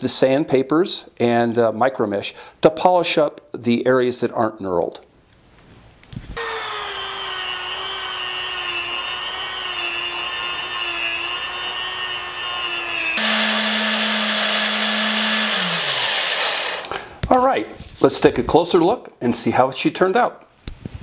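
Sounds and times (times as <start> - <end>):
drill motor humming: 6.4 - 17.0
rotary tool wire brush whining: 6.4 - 17.1.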